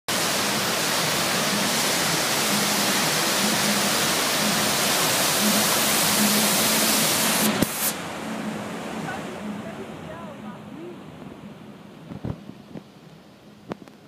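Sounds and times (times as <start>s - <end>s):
waterfall rushing: 0.1s - 14.0s.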